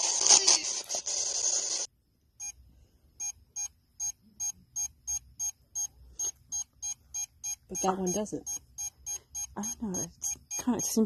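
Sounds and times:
meter short beeps: 3.2 - 11.0.

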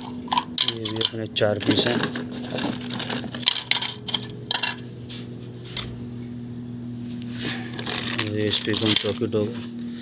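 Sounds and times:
plastic plates clacking on concrete: 0.0 - 4.8
steady low hum: 0.0 - 10.0.

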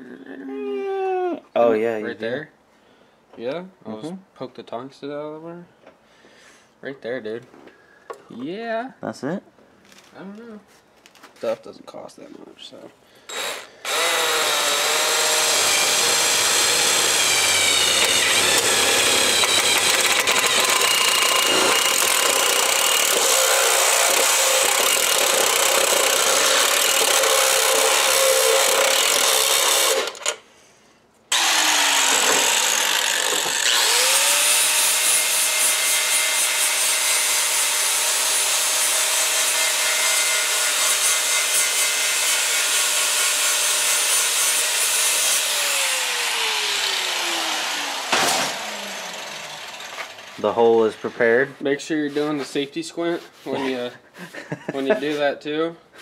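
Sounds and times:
angle grinder cutting pipe: 13.3 - 30.4, 31.3 - 50.8
drill grinding through steel: 13.3 - 30.4, 31.3 - 50.8.

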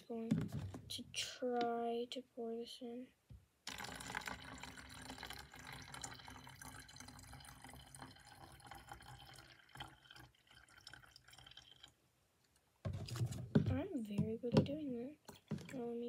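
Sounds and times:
water pouring into bottle: 3.7 - 12.0.

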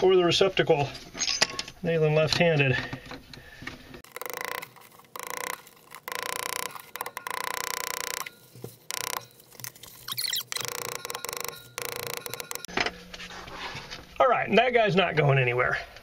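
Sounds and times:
hammer driving nails: 4.0 - 8.3.

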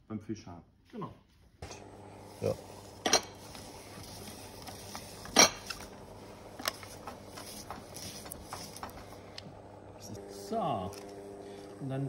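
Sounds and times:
spiral slicer cutting potato: 2.2 - 9.5.

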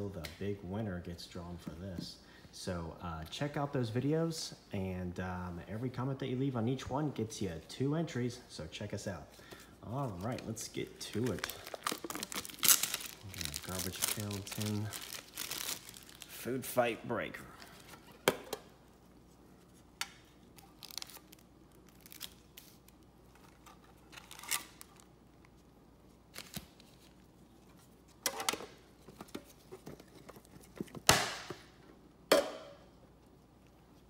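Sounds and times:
foil packs crinkling: 9.9 - 16.6.

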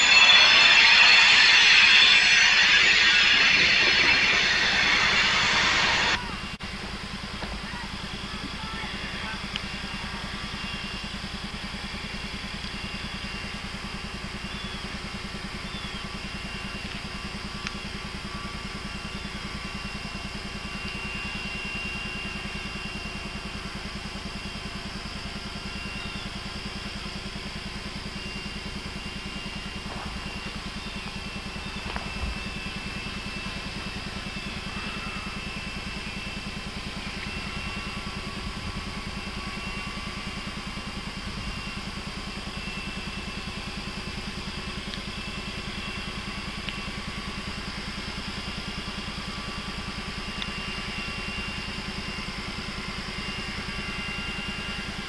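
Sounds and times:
diesel locomotive engine rumble: 0.0 - 6.5.

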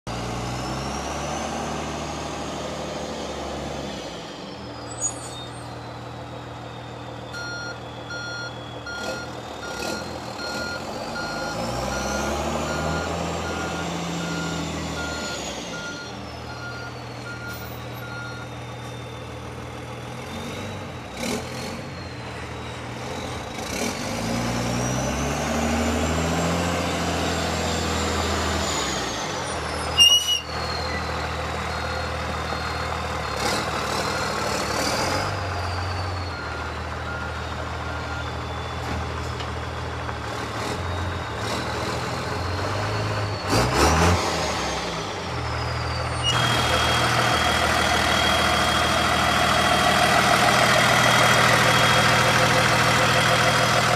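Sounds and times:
diesel truck engine revving: 0.1 - 53.9
beeping alarm: 6.8 - 19.4.

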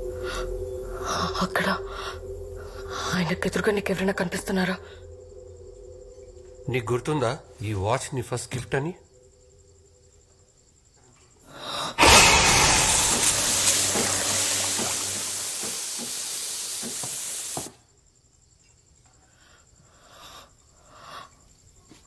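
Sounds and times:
coffee machine steam hissing: 12.0 - 17.8.

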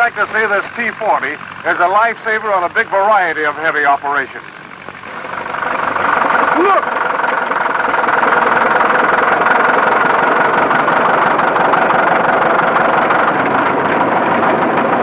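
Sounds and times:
diesel tractor engine running: 0.0 - 15.0.

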